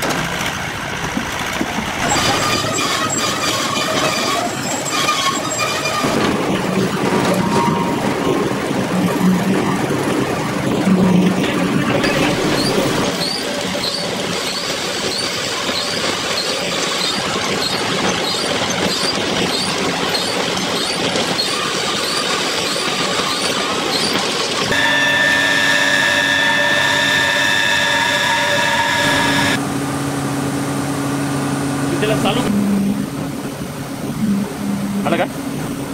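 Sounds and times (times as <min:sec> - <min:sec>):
conveyor mechanical rumble: 0:00.0 - 0:35.9
machine hum with high whine: 0:10.8 - 0:14.6, 0:24.7 - 0:35.9.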